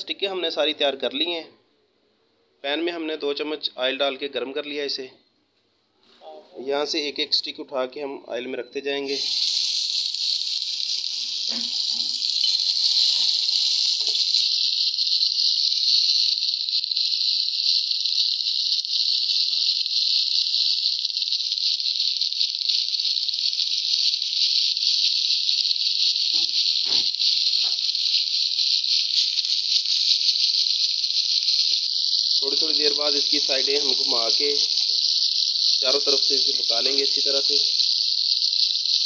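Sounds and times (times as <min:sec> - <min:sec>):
meat sizzling in hot oil: 0:09.0 - 0:39.0.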